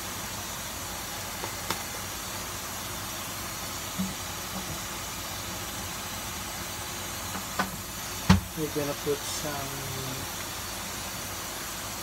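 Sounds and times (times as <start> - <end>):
food sizzling in a saucepan: 0.0 - 12.0.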